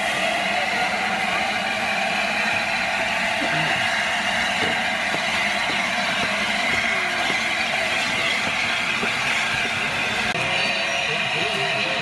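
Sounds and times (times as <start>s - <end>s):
steam locomotive hissing steam: 0.0s - 12.0s.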